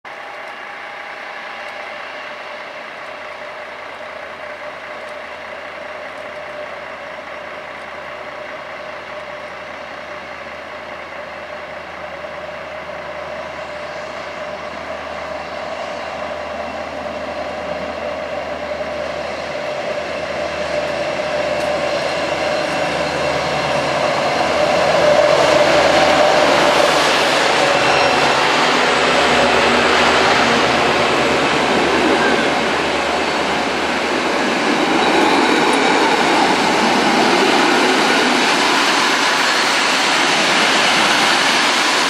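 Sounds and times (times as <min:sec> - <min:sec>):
diesel locomotive engine drone: 0:00.1 - 0:42.0.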